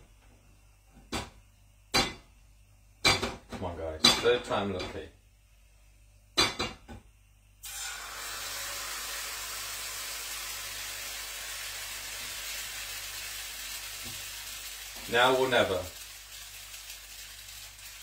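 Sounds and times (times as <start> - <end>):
batter sizzling in pan: 7.6 - 18.0.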